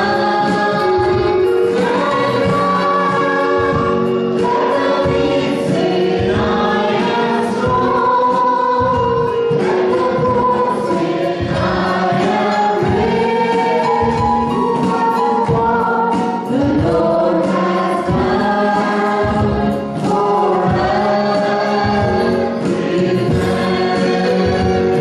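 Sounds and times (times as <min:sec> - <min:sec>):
mixed vocal group singing gospel: 0:00.0 - 0:25.0.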